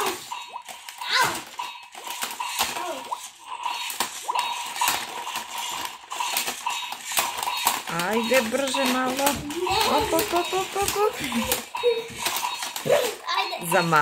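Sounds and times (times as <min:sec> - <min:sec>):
plastic clacks of toy robots: 0:00.0 - 0:14.0.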